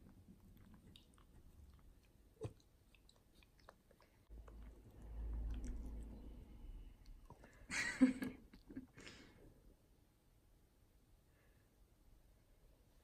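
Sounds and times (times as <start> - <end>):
dog chewing food: 0.0 - 6.2
low rumble: 4.4 - 7.4.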